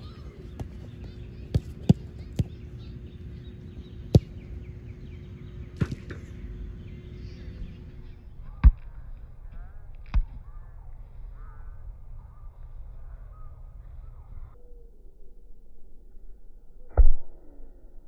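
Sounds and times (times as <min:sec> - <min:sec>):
ball kicked thuds: 0:00.0 - 0:02.9, 0:03.8 - 0:04.6, 0:05.8 - 0:06.3
low outdoor background: 0:00.0 - 0:18.0.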